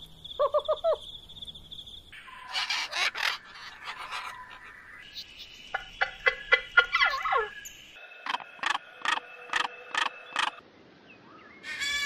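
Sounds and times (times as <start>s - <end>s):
bird calling: 0.4s - 1.0s, 2.2s - 7.7s.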